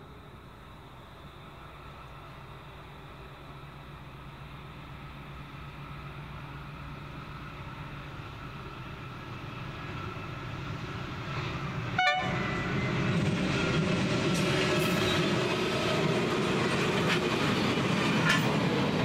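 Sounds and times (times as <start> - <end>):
locomotive engine rumble: 0.0 - 19.0
train horn toot: 12.0 - 13.0.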